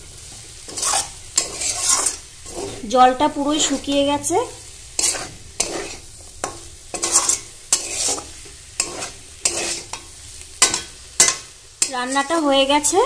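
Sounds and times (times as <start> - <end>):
light sizzle: 0.0 - 13.0
spatula scraping metal pan: 0.6 - 4.1, 5.0 - 12.9.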